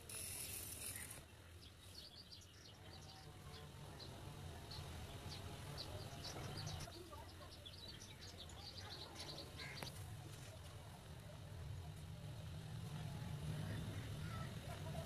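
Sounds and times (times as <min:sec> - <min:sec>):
small birds chirping: 0:00.1 - 0:10.3.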